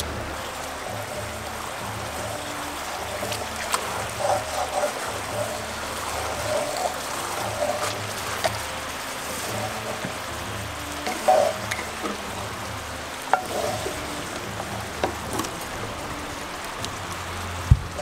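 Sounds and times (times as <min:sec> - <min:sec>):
sauce bubbling and sizzling: 0:00.0 - 0:18.0
wooden spatula scraping a pan: 0:02.1 - 0:10.3, 0:11.0 - 0:12.4.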